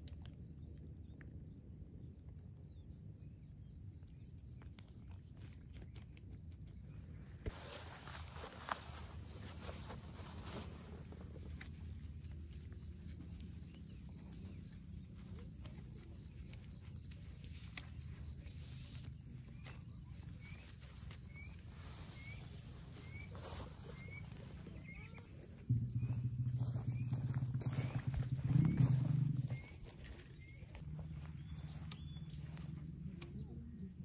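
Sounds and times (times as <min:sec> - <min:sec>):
loud low hum: 0:24.2 - 0:33.8
low rumble: 0:25.4 - 0:33.8.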